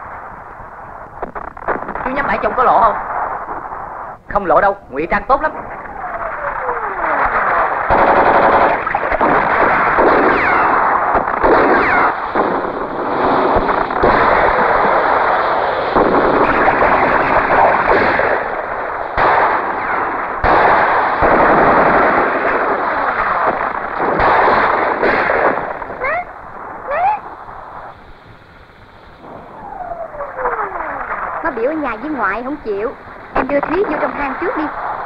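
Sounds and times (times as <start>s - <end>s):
automatic gunfire bursts: 7.9s - 18.5s, 19.2s - 26.2s.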